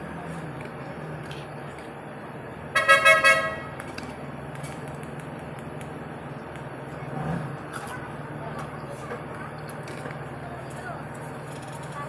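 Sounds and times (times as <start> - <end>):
horn tooting: 2.7 - 3.8.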